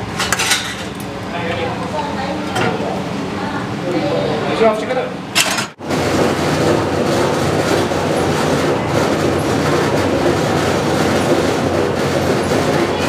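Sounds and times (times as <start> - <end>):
loud mechanical rumble with rattle: 5.1 - 13.0.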